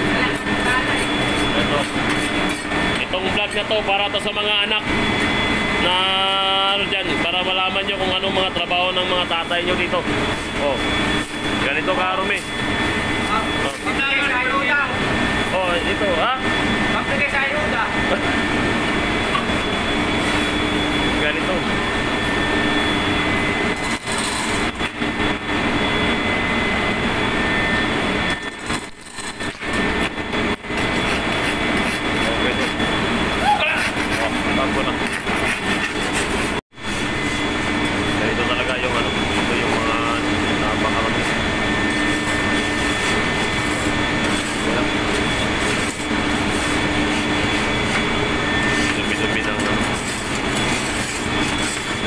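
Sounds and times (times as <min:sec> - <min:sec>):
machinery droning: 0:00.0 - 0:52.0
steady whining tones: 0:00.0 - 0:52.0.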